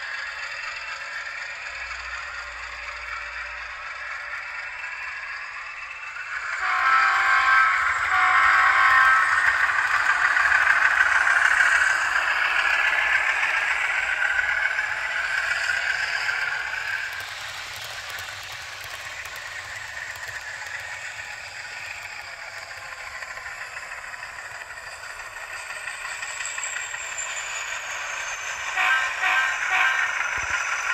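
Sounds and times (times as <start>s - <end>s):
model locomotive engine sound: 0.0s - 30.9s
train rattling over track: 0.0s - 30.9s
model train horn blasts: 6.6s - 9.6s, 28.8s - 30.2s.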